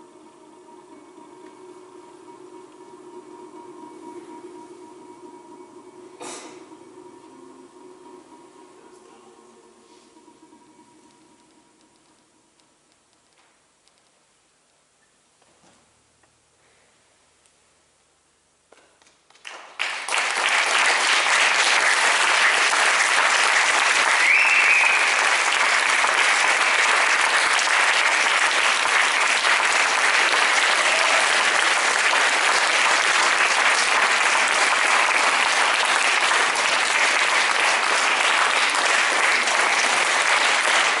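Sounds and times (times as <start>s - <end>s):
audience applauding: 19.3s - 41.0s.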